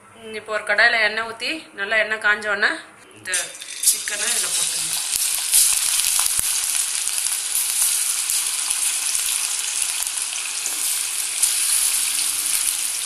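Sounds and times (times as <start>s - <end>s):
chicken deep-frying in hot oil: 3.4s - 13.0s.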